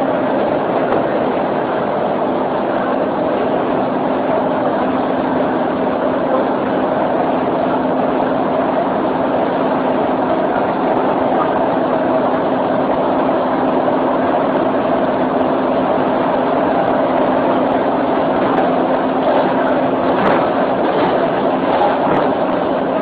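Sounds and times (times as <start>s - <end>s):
low train hum: 0.0s - 23.0s.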